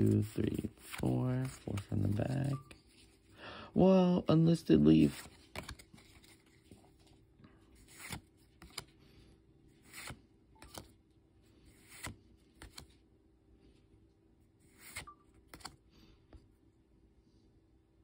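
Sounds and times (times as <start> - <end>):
trading cards sliding: 0.0 - 3.3, 5.0 - 7.1, 7.8 - 9.0, 9.7 - 11.0, 11.6 - 13.0, 14.6 - 15.8.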